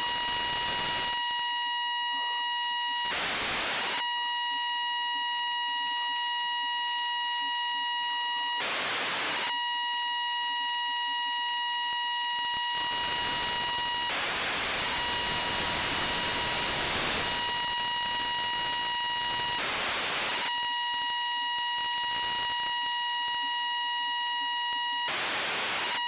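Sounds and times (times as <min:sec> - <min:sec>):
static hiss: 0:00.0 - 0:01.2, 0:03.0 - 0:04.0, 0:12.4 - 0:22.8.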